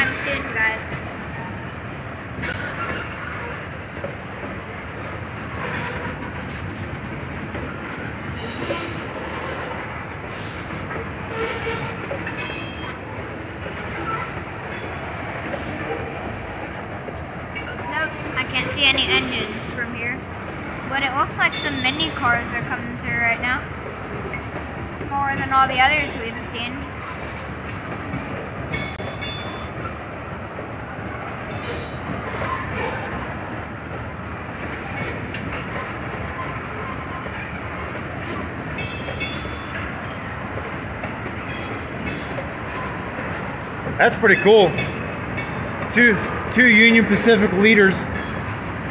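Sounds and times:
high wheel squeal: 0:00.0 - 0:00.7, 0:10.7 - 0:13.0, 0:21.5 - 0:22.2, 0:31.5 - 0:33.2
train wheels rumbling on rails: 0:00.0 - 0:48.9
high-pitched wheel squeals: 0:10.7 - 0:13.0.

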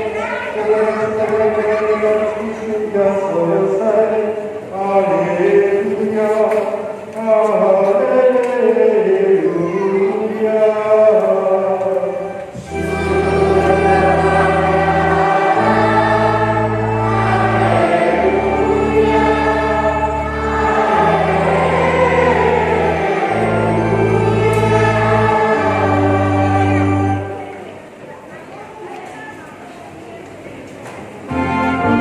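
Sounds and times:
children's choir singing a hymn: 0:00.0 - 0:28.0, 0:31.2 - 0:32.0
sustained keyboard chords: 0:11.8 - 0:27.7, 0:31.3 - 0:32.0.

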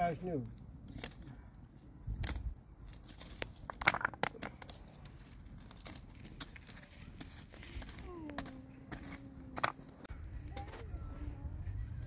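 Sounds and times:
wood fire crackling: 0:00.0 - 0:10.1
sticks snapping and knocking: 0:00.5 - 0:10.1.

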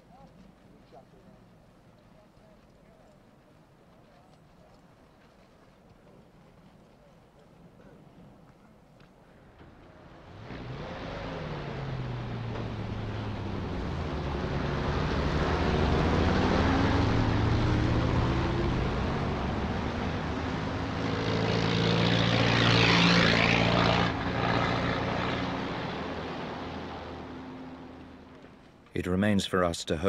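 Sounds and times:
vehicle engines droning past: 0:09.4 - 0:30.0.

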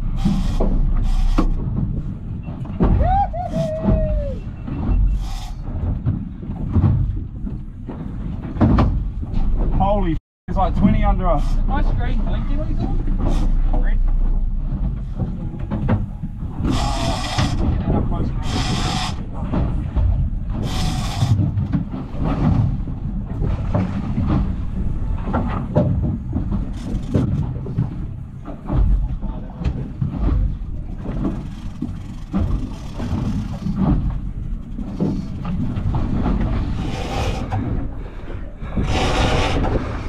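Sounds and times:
boat engine rumble: 0:00.0 - 0:40.0
water noise: 0:00.0 - 0:40.0
wind: 0:00.0 - 0:40.0
knocks on metal boat: 0:05.9 - 0:09.9.

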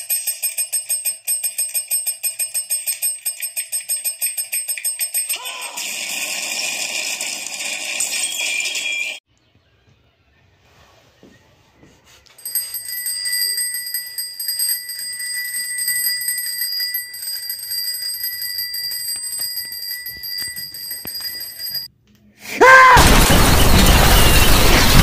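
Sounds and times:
bicycle bell ringing: 0:00.0 - 0:05.7, 0:12.4 - 0:21.9
explosion sound effect: 0:23.0 - 0:25.0.

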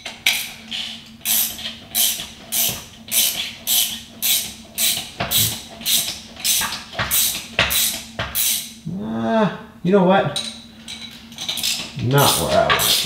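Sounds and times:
hand ratchet rasping: 0:00.3 - 0:08.7, 0:11.4 - 0:13.0.

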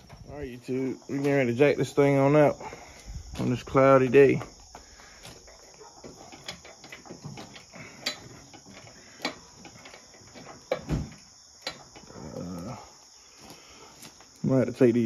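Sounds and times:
high insect trill: 0:00.0 - 0:15.0.

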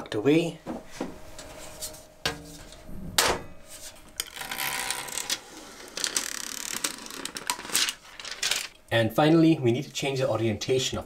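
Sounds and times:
cables rubbing and rustling: 0:03.7 - 0:08.8.

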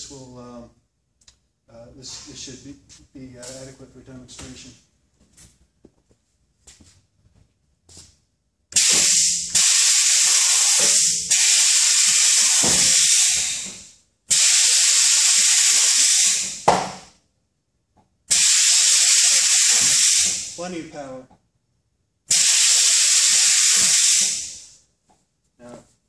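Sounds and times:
compressed air hissing: 0:02.0 - 0:02.6, 0:08.7 - 0:17.1, 0:18.3 - 0:20.6, 0:22.3 - 0:24.8
sharp knock: 0:16.6 - 0:17.1.

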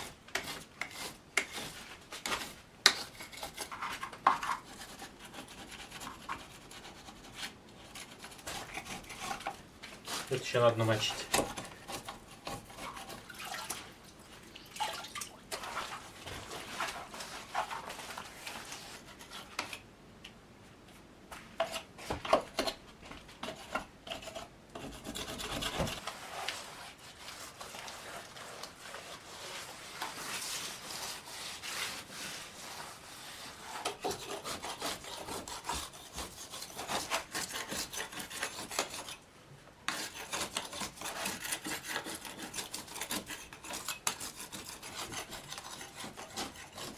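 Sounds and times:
scraper scraping wallpaper off wood: 0:23.4 - 0:39.2, 0:39.9 - 0:46.9
wet rag rubbing wood: 0:25.2 - 0:38.6.

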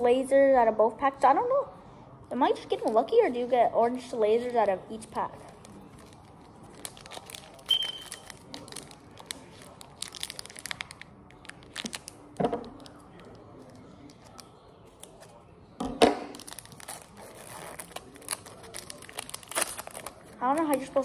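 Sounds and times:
foil pack crinkling and tearing: 0:05.3 - 0:14.4, 0:16.3 - 0:21.0
scissors cutting wrapper: 0:05.4 - 0:12.1, 0:16.4 - 0:20.8.

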